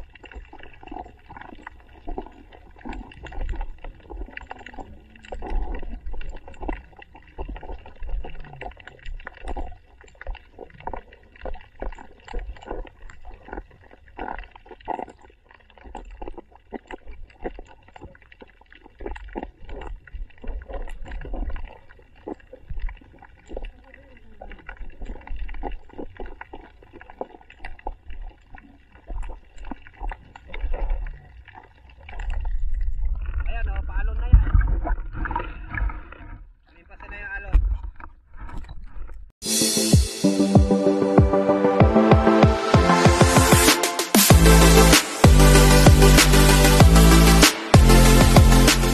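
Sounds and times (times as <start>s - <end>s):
water gurgling: 0.0s - 48.9s
underwater low thumps: 32.1s - 36.6s, 40.0s - 48.9s.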